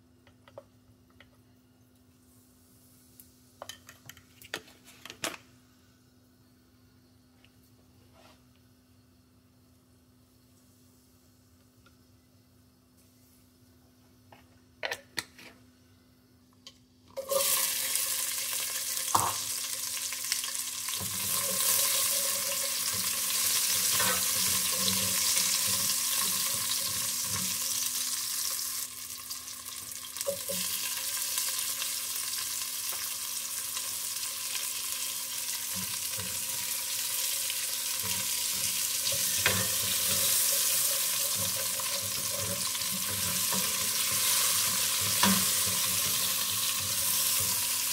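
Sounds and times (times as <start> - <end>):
garlic and spices sizzling in oil: 2.2 - 4.0, 17.2 - 47.9.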